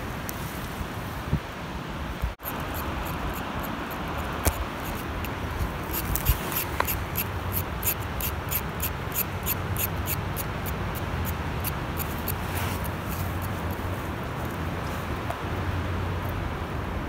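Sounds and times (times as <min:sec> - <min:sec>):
knife scraping a carrot: 0:04.4 - 0:13.6.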